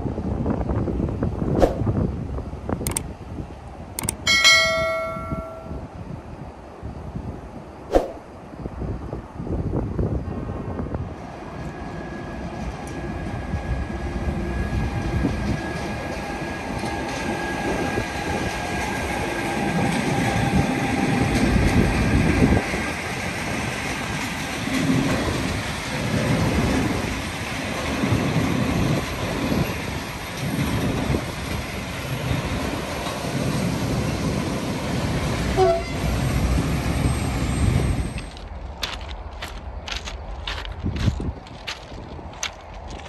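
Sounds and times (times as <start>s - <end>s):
freight train wheels rumbling: 0.0s - 43.0s.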